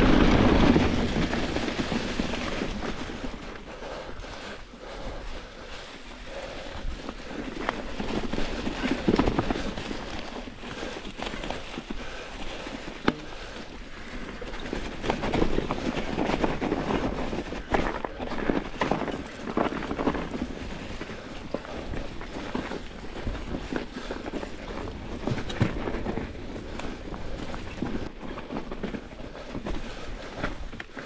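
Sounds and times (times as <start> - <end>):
bike tyres crunching through leaves: 0.0 - 31.0
bike clicks and knocks: 6.9 - 31.0.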